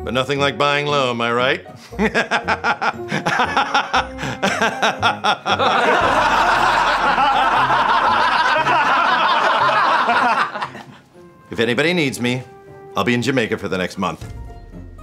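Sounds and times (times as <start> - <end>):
background music: 0.0 - 15.0
men laughing: 1.8 - 11.1.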